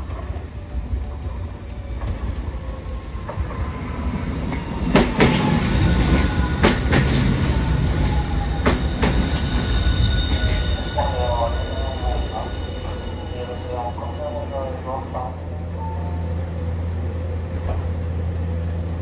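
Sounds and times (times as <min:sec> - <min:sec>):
tram rumble: 0:00.0 - 0:19.0
wheels clacking over rail joints: 0:01.1 - 0:09.7.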